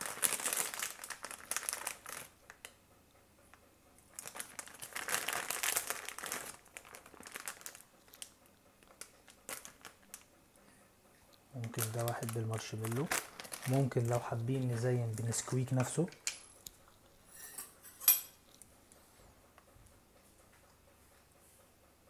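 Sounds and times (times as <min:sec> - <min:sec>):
plastic bag crinkling: 0:00.0 - 0:02.7, 0:04.1 - 0:10.3, 0:11.5 - 0:16.4.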